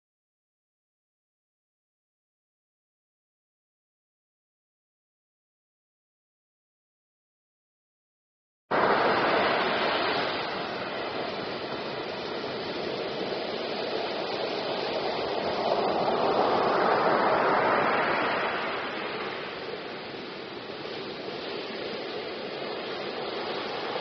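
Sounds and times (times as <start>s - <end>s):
waves breaking on a beach: 8.7s - 24.0s.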